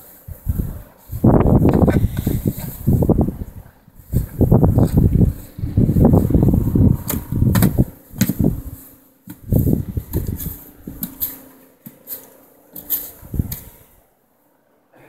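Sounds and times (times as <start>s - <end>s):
wind buffeting microphone: 0.0s - 11.2s, 13.2s - 14.0s
plastic shovel scraping snow: 8.4s - 13.8s.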